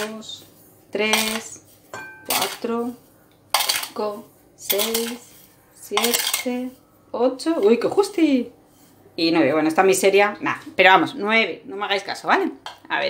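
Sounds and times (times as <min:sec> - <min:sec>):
metal spoon scraping ceramic bowl: 0:03.5 - 0:06.8.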